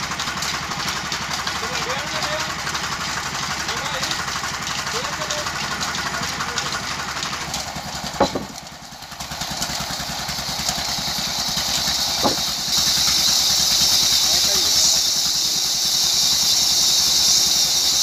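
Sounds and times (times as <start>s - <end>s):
band saw motor hum: 0.0s - 18.0s
sharp knock: 8.2s - 8.6s, 12.2s - 12.5s
loud high hiss: 10.5s - 18.0s.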